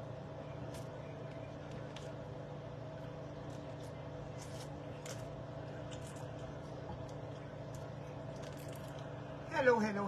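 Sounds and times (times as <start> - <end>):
machine hum: 0.0 - 10.0.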